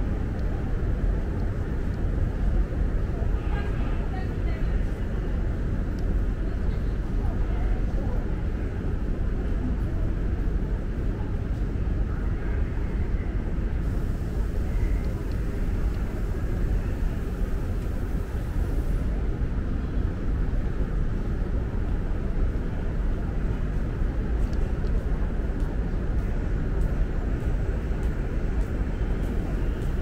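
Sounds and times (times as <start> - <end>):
station concourse ambient rumble: 0.0 - 30.0.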